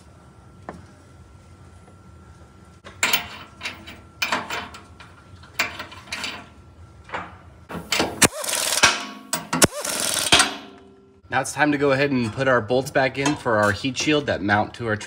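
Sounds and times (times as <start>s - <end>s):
power ratchet whirring: 7.8s - 10.6s.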